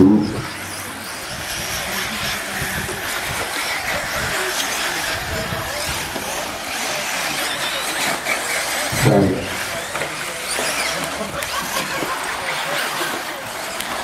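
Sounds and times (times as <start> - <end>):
low loud sound: 0.0 - 3.3
toy buggy engines buzzing: 0.0 - 14.0.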